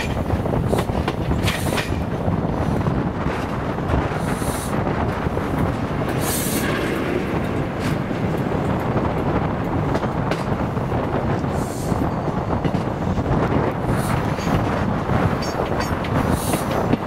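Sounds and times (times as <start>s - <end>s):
train rumbling on rails: 0.0s - 17.0s
wheel clicks over rail joints: 14.1s - 17.0s.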